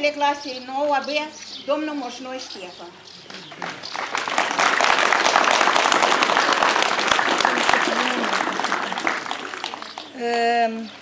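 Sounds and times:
crowd applauding: 0:03.4 - 0:10.2.

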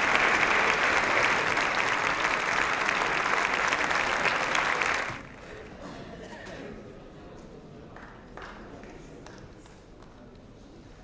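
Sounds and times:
crowd applauding: 0:00.0 - 0:05.5.

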